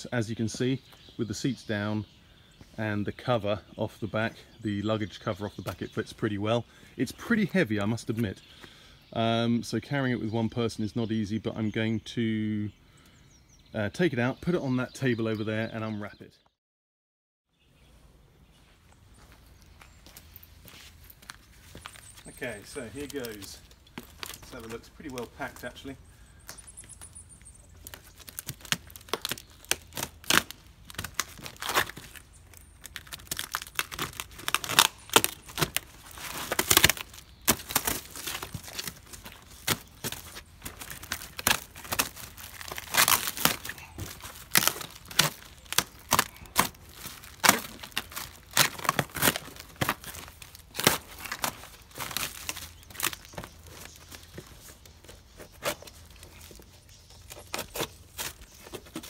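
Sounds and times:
packaging ripping and crackling: 23.0 - 25.3, 27.8 - 54.8, 55.4 - 59.0.

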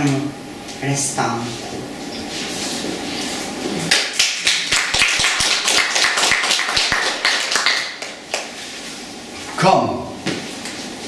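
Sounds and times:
small audience applauding: 3.9 - 8.6.

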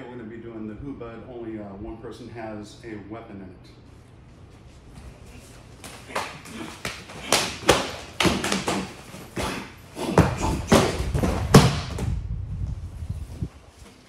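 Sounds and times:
steps on a training mat: 4.8 - 12.1
hands slapping and blocking: 5.8 - 9.5
body thudding onto a mat: 8.2 - 12.2.

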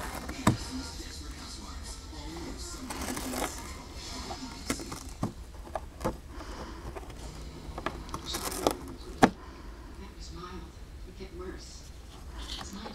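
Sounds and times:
cat chewing cardboard: 0.0 - 1.5.

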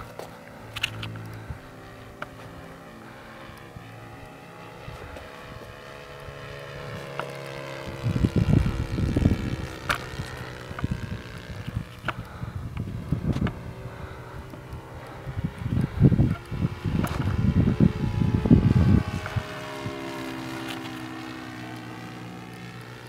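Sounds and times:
model airplane engine drone: 0.0 - 23.0
wind buffeting microphone: 7.8 - 21.2.

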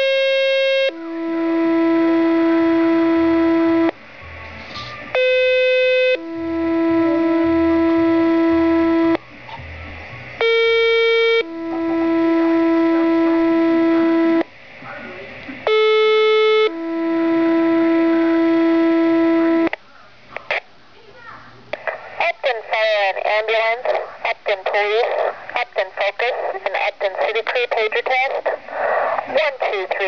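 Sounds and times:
pager two-tone alert: 10.4 - 12.1.

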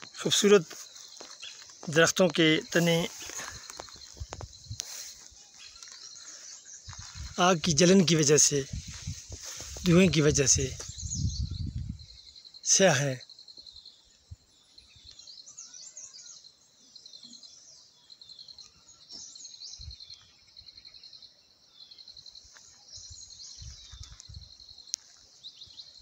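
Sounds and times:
pulsing insect trill: 0.0 - 17.5
small birds chirping: 0.0 - 26.0.

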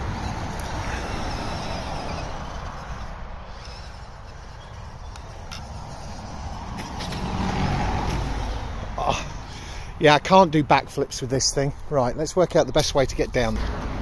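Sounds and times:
electric motor and gears whirring: 0.0 - 9.6.

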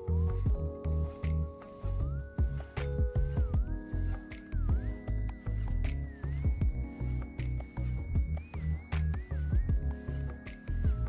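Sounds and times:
heavy bass beat: 5.8 - 6.9.

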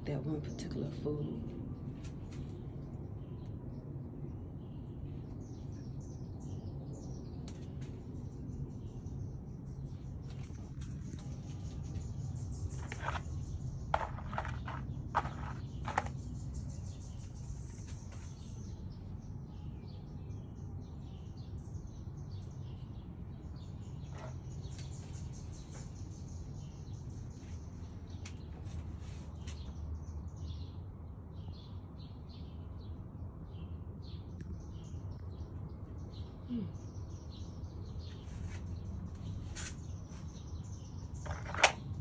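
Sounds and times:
small birds chirping: 0.0 - 42.0.

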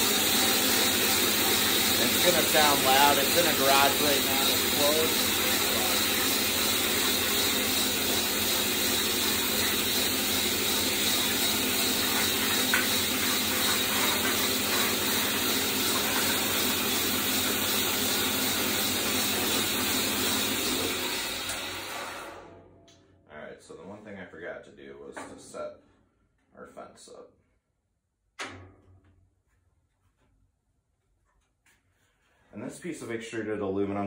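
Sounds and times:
bandsaw motor drone and hiss: 0.0 - 14.3.

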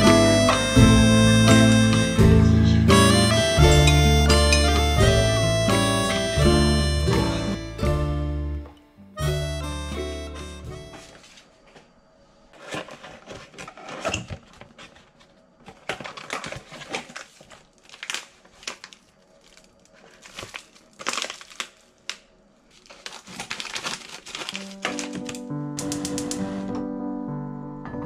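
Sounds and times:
crinkling handling noise: 10.9 - 11.9, 12.5 - 26.7.

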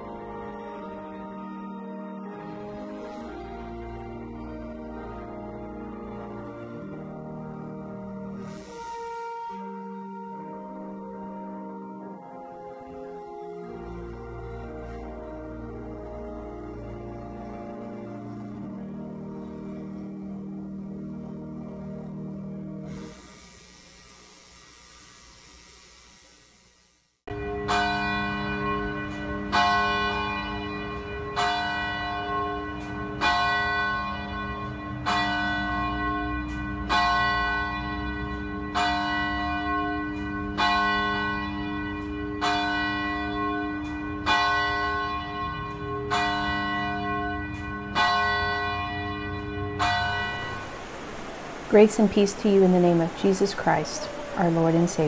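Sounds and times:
church bell tolling: 27.3 - 50.9.

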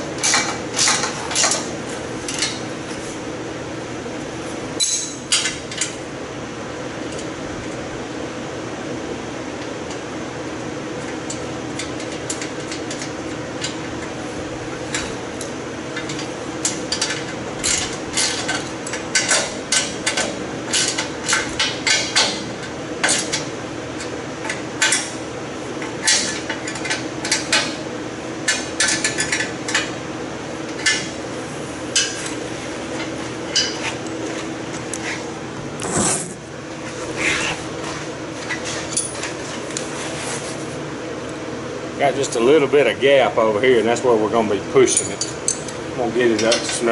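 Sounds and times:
steady hum: 0.0 - 46.9
wrench and bolts clinking on metal: 4.8 - 5.9.

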